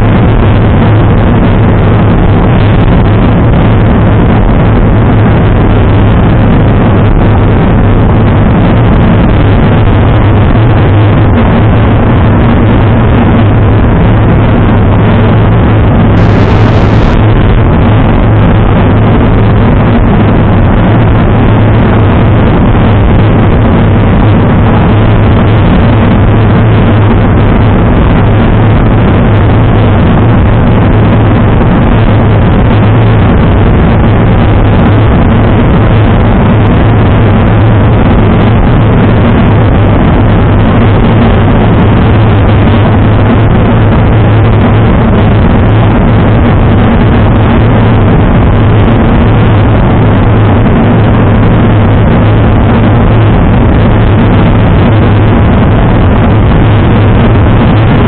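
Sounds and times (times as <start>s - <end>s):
wind roaring on microphone: 0.0s - 58.0s.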